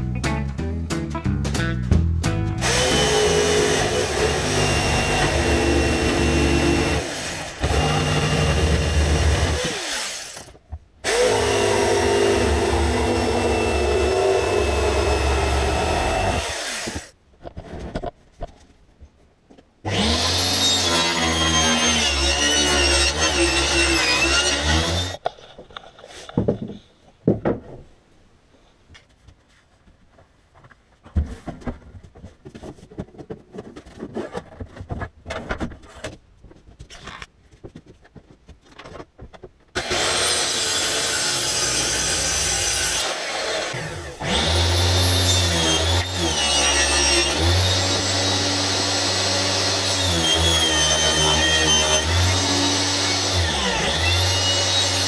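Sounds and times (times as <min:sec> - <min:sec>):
power saws running: 0:02.6 - 0:17.1
table saw cutting: 0:02.6 - 0:17.1, 0:19.9 - 0:25.2, 0:39.8 - 0:55.0.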